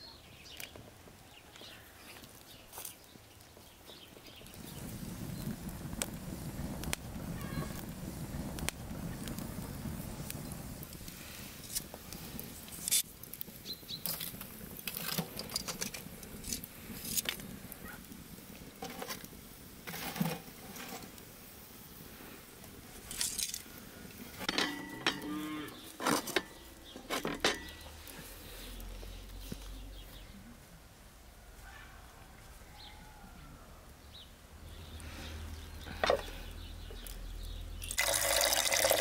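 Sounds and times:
wood fire crackling: 0.2 - 39.0
cow mooing: 25.0 - 25.8.

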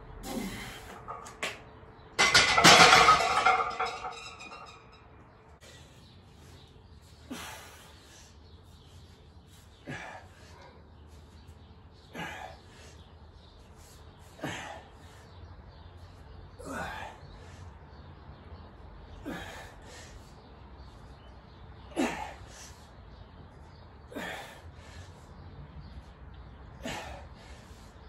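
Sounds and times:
barbell plates clanking on rack: 2.2 - 4.9.

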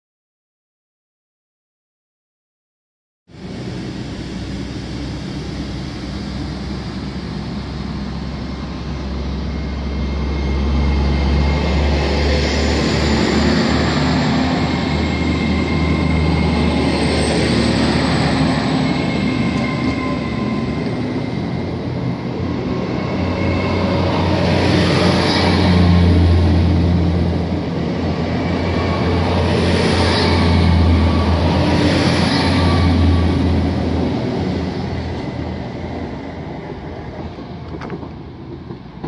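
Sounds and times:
diesel train engines running: 3.3 - 39.0
train wheels rolling on rails: 3.7 - 39.0.

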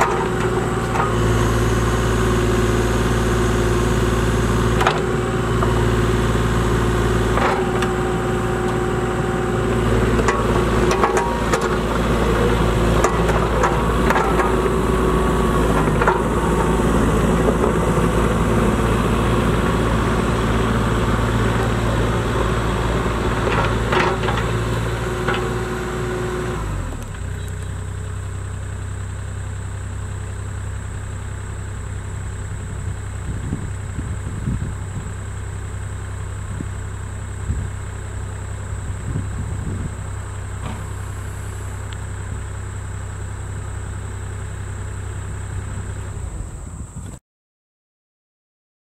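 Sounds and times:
excavator diesel engine: 0.0 - 47.2
hydraulic whine: 32.5 - 47.2.

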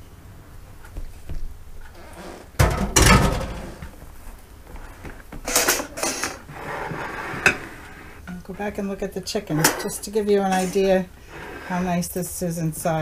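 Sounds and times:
metal utensils clattering: 2.6 - 3.8, 5.5 - 6.4, 9.5 - 10.9.

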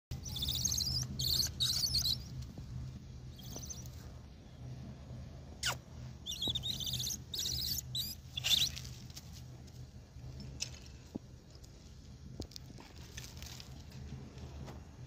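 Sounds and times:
low hum: 0.1 - 15.0
high-pitched trilled chirping: 0.2 - 2.3, 5.6 - 8.7.

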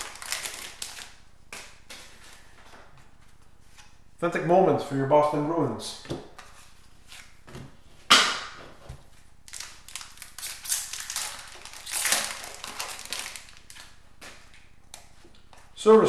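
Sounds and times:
wrapper tearing and crinkling: 0.0 - 1.2, 9.5 - 14.0.

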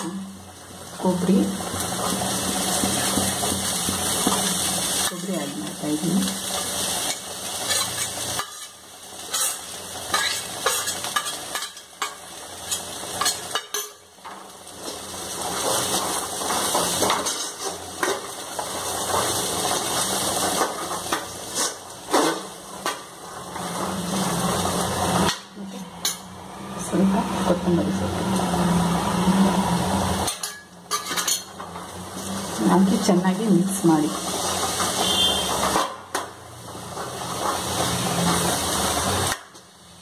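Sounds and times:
metal spoon scraping metal pan: 6.4 - 14.0, 15.6 - 18.2, 20.5 - 22.6, 30.2 - 32.4, 34.3 - 36.0.

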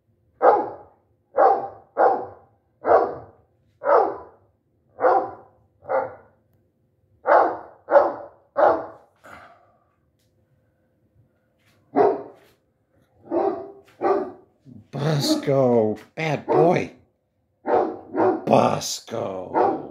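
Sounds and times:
dog barking through speaker: 0.4 - 4.4, 5.0 - 6.3, 7.2 - 9.0, 11.9 - 12.4, 13.2 - 14.4, 15.0 - 15.7, 16.3 - 17.0, 17.6 - 18.8, 19.4 - 19.9.

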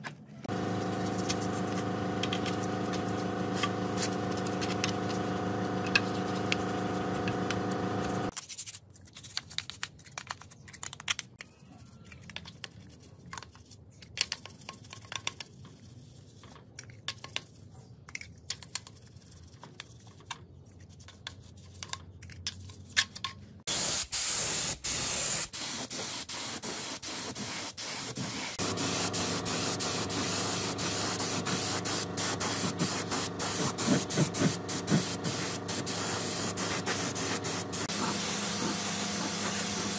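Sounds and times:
paintbrush scrubbing metal parts: 0.4 - 9.2, 24.9 - 39.9
machine hum: 0.5 - 8.3, 28.6 - 39.9
motor hum: 0.5 - 8.3, 28.6 - 39.9
paint spray gun hissing: 0.5 - 8.3, 23.7 - 39.9.

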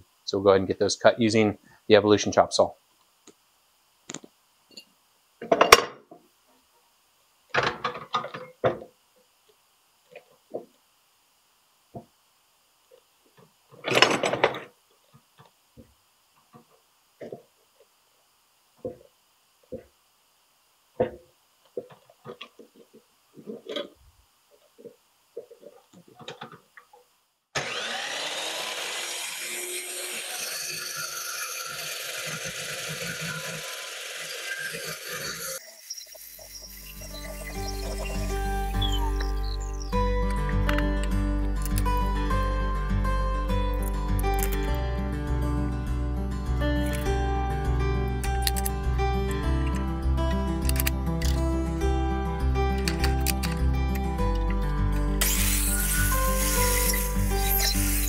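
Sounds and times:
vise clicks and knocks: 13.8 - 14.7
saw blade grinding through pipe: 27.6 - 38.4, 55.2 - 58.0
chop saw motor starting: 27.6 - 39.6, 55.2 - 58.0.

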